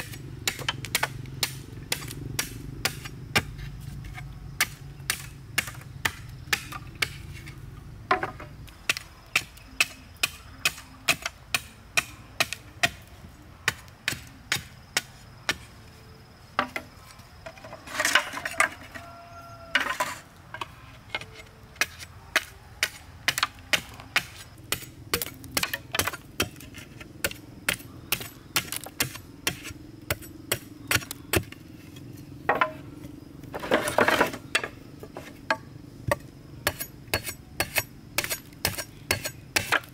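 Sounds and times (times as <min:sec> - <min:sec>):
machete chopping bamboo: 0:00.0 - 0:07.2, 0:08.1 - 0:13.1, 0:21.8 - 0:31.6, 0:33.6 - 0:39.9.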